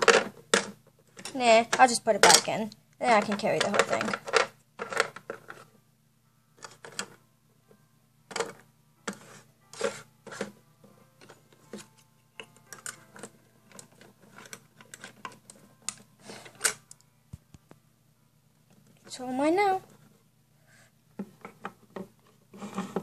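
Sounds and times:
toy pieces clinking in metal tin: 3.1 - 5.6.

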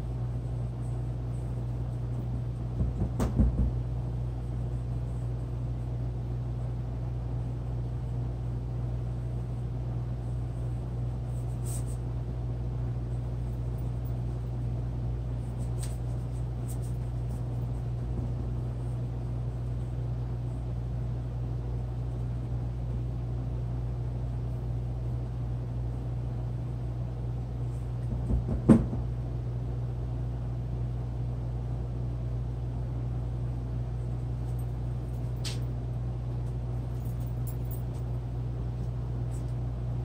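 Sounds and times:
low hum: 0.0 - 40.0
knocks: 2.8 - 3.8, 28.1 - 29.1.

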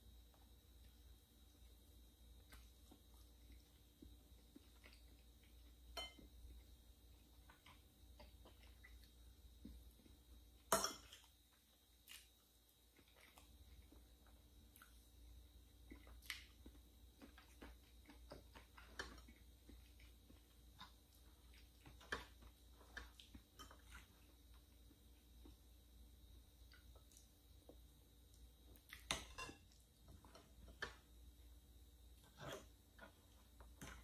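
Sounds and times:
chewing cake: 2.4 - 10.2, 12.0 - 25.6.

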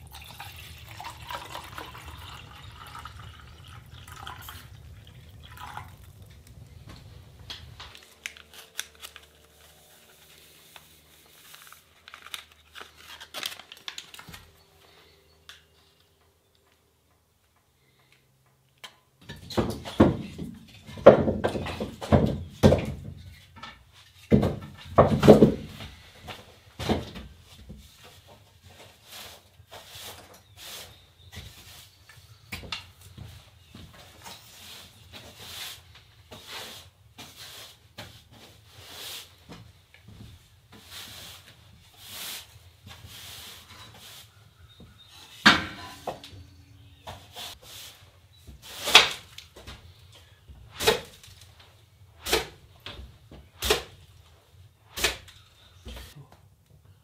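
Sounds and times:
push broom sweeping wooden floor: 26.8 - 32.1, 34.1 - 44.4, 47.1 - 49.3.

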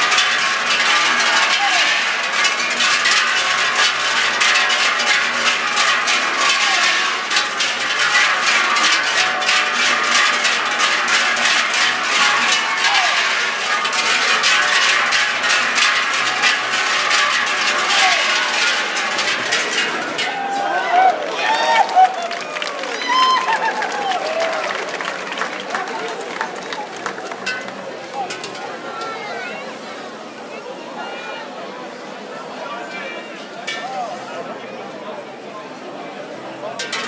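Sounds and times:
cowbells clanging: 0.0 - 21.2, 27.1 - 29.2, 36.8 - 37.0.

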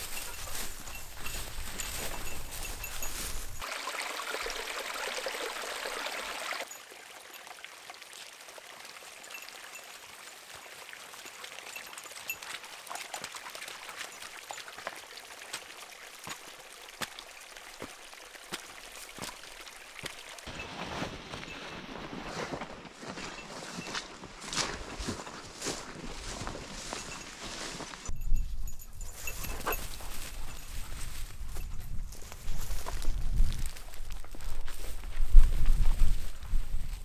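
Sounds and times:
footsteps through undergrowth: 0.0 - 3.7, 14.0 - 37.0
forest ambience: 0.0 - 37.0.

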